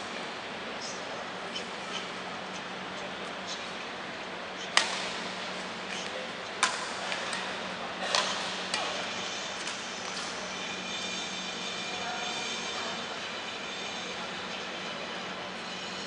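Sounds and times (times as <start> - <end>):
steady hum: 0.0 - 16.0
rackets hitting shuttlecock: 4.7 - 5.3, 6.6 - 10.4.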